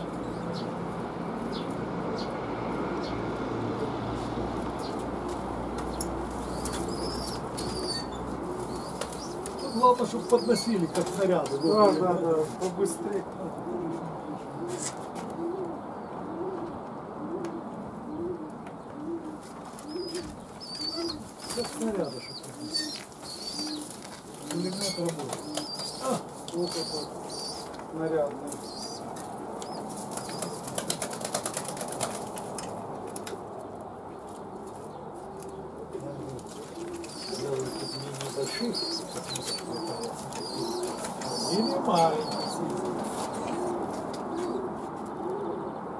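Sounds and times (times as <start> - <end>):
pigeon cooing: 1.5 - 45.9
wings flapping and rustling: 4.2 - 13.0, 19.2 - 45.2.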